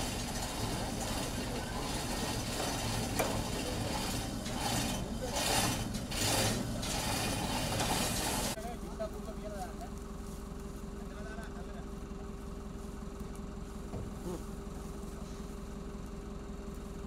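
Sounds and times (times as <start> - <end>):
metal gate creaking and scraping: 0.0 - 8.6.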